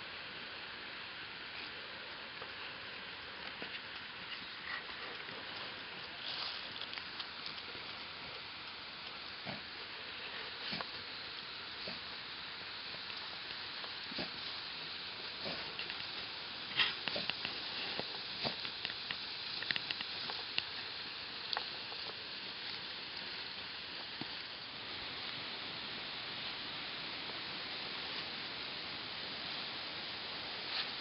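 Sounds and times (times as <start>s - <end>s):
steady hiss: 0.0s - 31.0s
dry leaves rustling: 3.3s - 25.2s.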